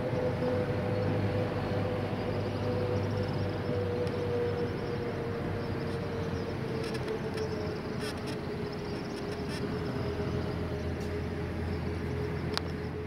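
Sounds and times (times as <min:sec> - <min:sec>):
road traffic noise: 0:00.0 - 0:13.0
vehicle engine hum: 0:00.0 - 0:13.0.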